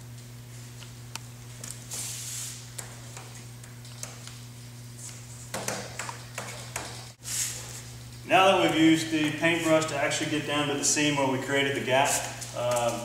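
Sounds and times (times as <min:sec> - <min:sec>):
steady low hum: 0:00.0 - 0:13.0
brush swishing: 0:07.2 - 0:07.9.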